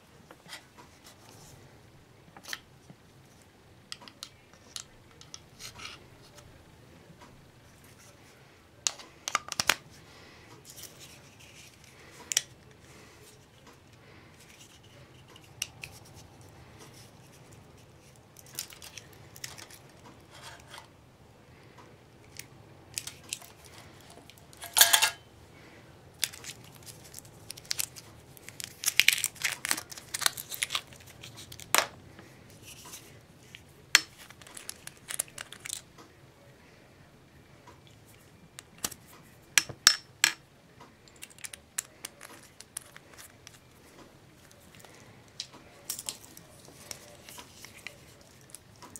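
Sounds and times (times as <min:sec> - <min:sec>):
small items clicking and tapping: 0:08.8 - 0:09.8, 0:33.5 - 0:35.8, 0:41.0 - 0:43.6.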